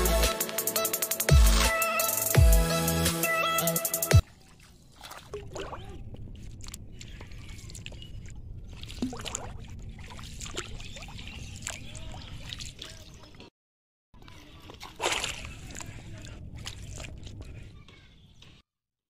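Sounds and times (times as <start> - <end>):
pond water sloshing and trickling: 4.2 - 13.5, 14.2 - 17.8
small splashes: 4.2 - 13.5, 14.3 - 17.7.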